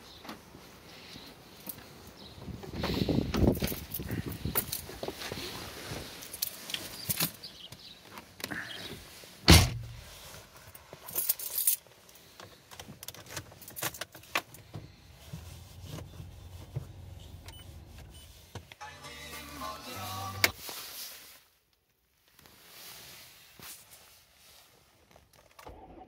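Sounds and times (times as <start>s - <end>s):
rustling: 0.2s - 25.6s
keys jangling: 3.4s - 4.9s, 11.0s - 11.8s
car door thump: 9.5s - 10.0s.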